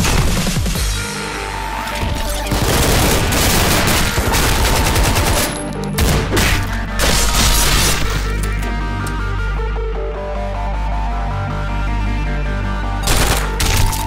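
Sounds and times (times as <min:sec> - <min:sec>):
rapid gunfire: 0:00.0 - 0:01.0, 0:02.3 - 0:08.0, 0:13.0 - 0:14.0
action music: 0:00.0 - 0:14.0.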